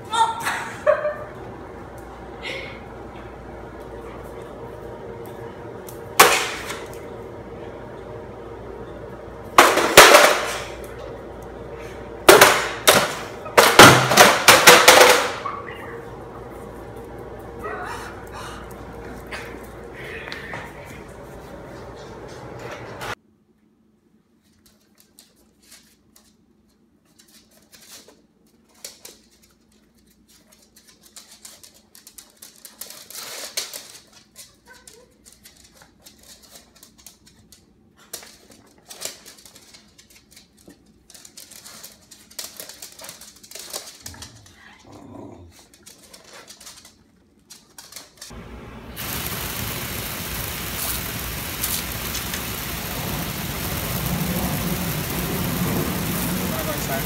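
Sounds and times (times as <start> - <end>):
garden hose spraying water: 48.3 - 57.0.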